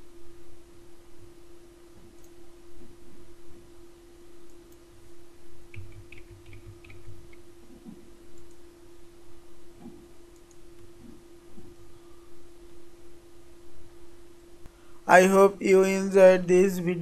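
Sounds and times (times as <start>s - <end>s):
low electrical hum: 0.0s - 17.0s
computer mouse clicks: 2.0s - 2.4s, 5.7s - 8.7s, 9.8s - 11.7s.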